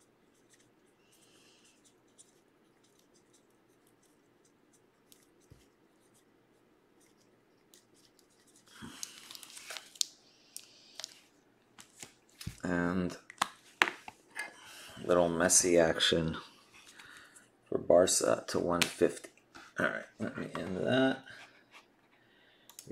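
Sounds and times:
marker scratching on plastic: 0:01.6 - 0:08.7
plastic crinkling: 0:07.7 - 0:12.7.

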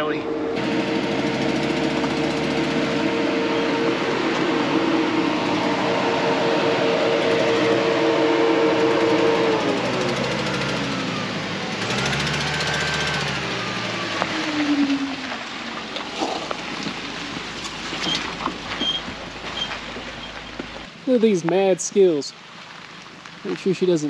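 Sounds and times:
higher whine: 0:00.0 - 0:17.4
vehicle engine and drivetrain whine: 0:00.0 - 0:21.0.

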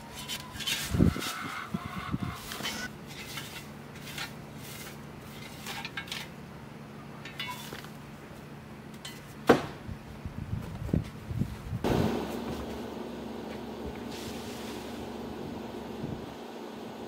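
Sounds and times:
shovel scraping dirt: 0:00.0 - 0:06.4, 0:07.3 - 0:08.0.

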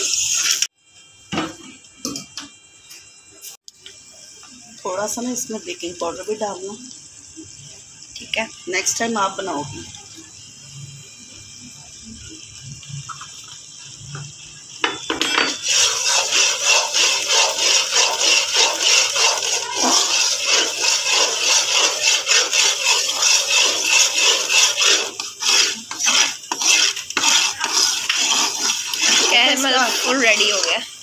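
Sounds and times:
metal spatula scraping a pot: 0:15.0 - 0:31.0.

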